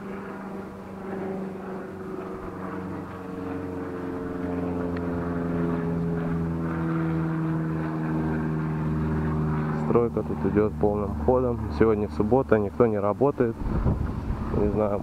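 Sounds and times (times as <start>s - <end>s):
engine droning: 0.0s - 15.0s.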